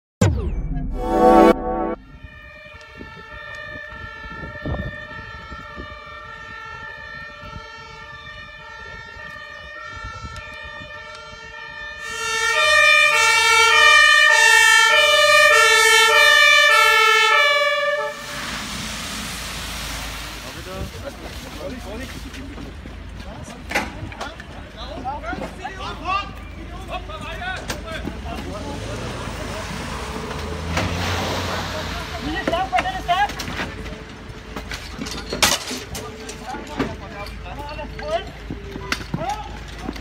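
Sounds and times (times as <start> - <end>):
logo sting: 0.2 - 2.4
two-tone fire engine siren: 1.0 - 18.9.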